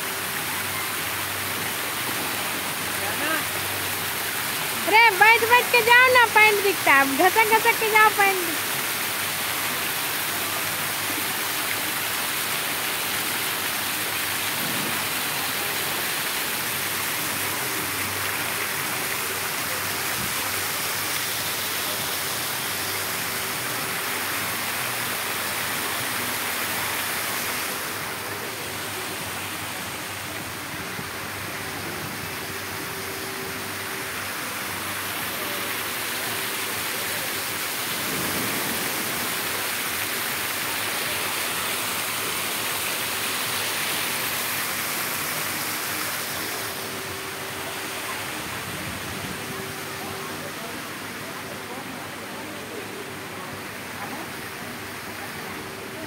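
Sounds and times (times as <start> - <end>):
water splashing into pool: 8.5 - 49.4.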